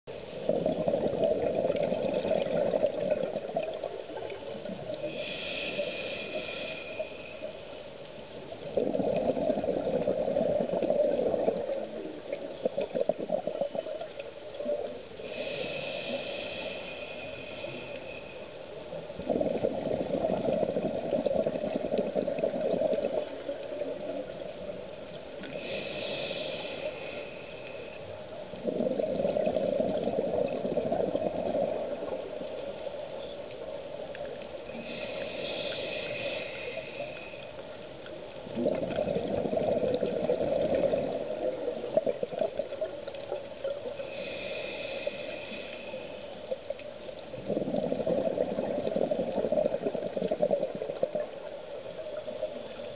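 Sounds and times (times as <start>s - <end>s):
exhaled bubbles gurgling: 0.3s - 7.4s, 8.4s - 18.2s, 18.9s - 37.7s, 38.4s - 46.1s, 47.0s - 52.9s
regulator inhale hiss: 4.9s - 8.1s, 15.1s - 18.9s, 25.3s - 28.4s, 34.4s - 37.9s, 43.7s - 46.6s.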